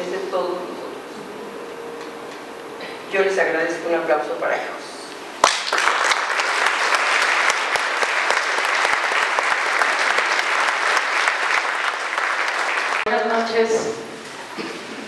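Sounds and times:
audience applauding: 5.4 - 13.1.

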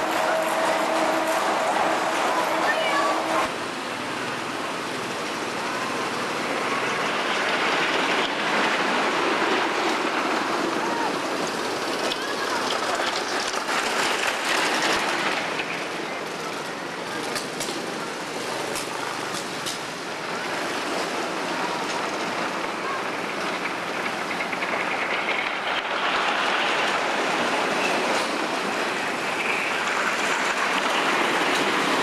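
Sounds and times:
roller coaster train rumbling: 0.0 - 32.0.

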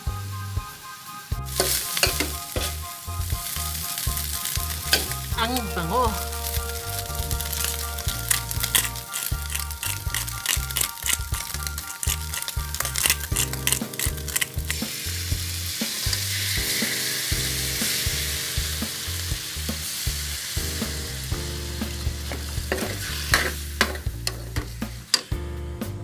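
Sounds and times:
meat sizzling in a wok: 0.6 - 25.4
metal spoon scraping a pan: 1.6 - 2.8, 7.5 - 15.1, 22.7 - 25.3.

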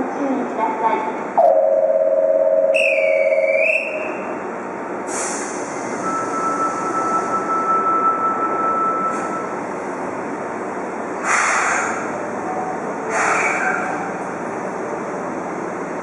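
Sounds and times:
station and train hum: 0.0 - 16.0
steady electronic tone: 1.4 - 4.2
train air hiss: 5.0 - 6.0, 11.2 - 12.2, 13.1 - 13.9.

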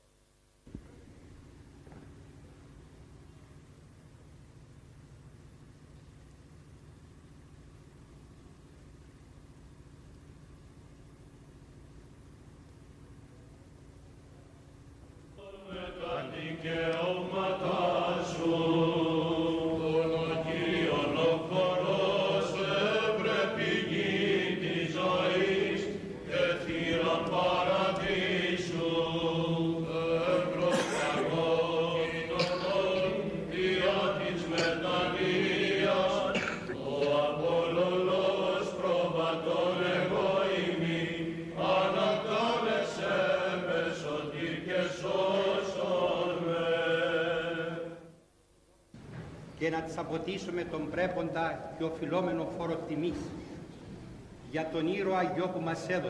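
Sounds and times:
slow chant melody: 15.3 - 48.4
low held drone note: 15.4 - 42.7.

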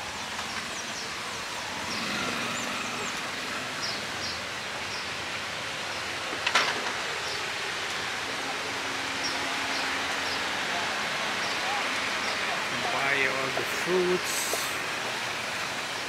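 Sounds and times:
street background noise: 0.0 - 16.0.

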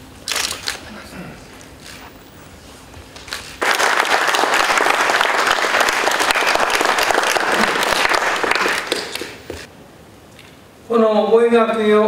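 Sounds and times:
audience applauding: 3.6 - 9.7.

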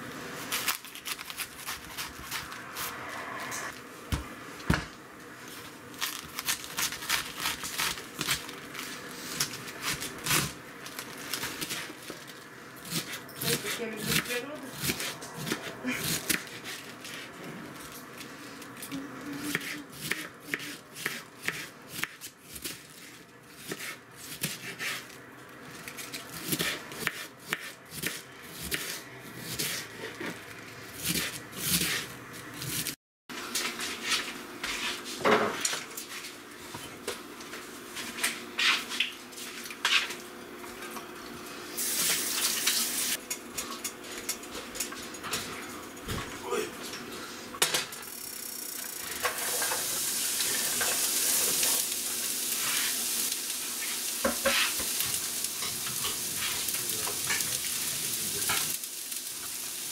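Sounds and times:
knife shredding cabbage: 0.4 - 3.0, 5.9 - 12.2, 12.8 - 18.7, 19.5 - 30.4, 31.0 - 33.0.

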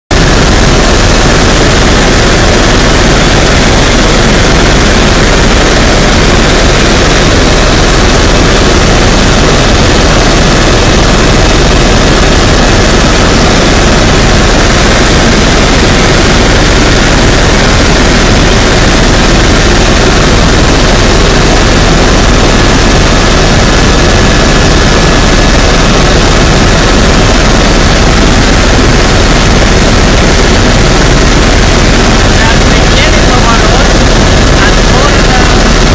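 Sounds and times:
helicopter rotor and engine: 0.1 - 35.9.

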